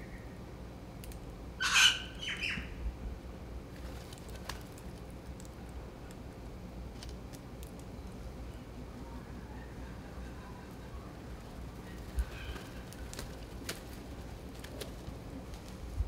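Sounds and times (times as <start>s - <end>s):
parrot squawking: 1.6s - 2.6s.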